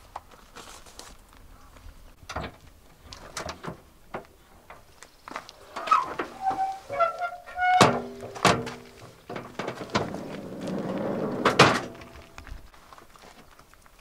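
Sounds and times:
short rustle: 0:05.0 - 0:13.5.

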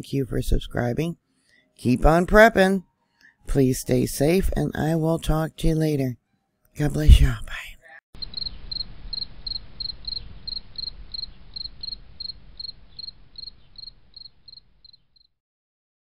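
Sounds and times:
low rumble: 0:08.2 - 0:14.5
cricket chirping: 0:08.2 - 0:15.3.

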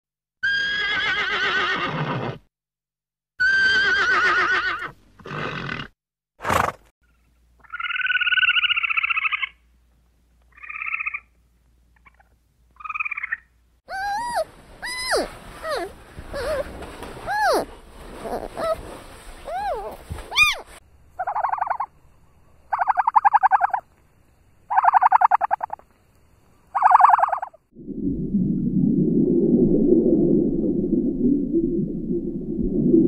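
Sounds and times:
horse whinnying: 0:00.4 - 0:02.4, 0:03.4 - 0:05.9, 0:13.9 - 0:18.8, 0:19.5 - 0:20.7
squirrel chattering trill: 0:12.0 - 0:16.6, 0:19.5 - 0:21.9, 0:24.7 - 0:25.8
high squeaky calls: 0:12.0 - 0:18.8, 0:19.4 - 0:21.9, 0:22.7 - 0:23.8, 0:24.7 - 0:25.8, 0:26.8 - 0:27.6
horse snorting: 0:15.1 - 0:20.8.

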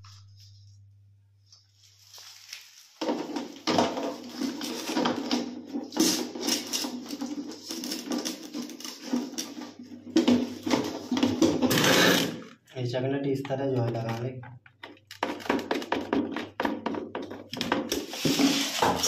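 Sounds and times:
plastic cistern rattling and knocking: 0:15.2 - 0:18.0.

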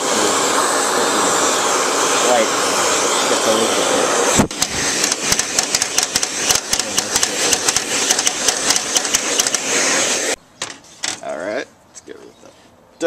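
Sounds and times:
hair dryer blowing: 0:00.0 - 0:10.4
rapid irregular clicking: 0:04.5 - 0:09.6.

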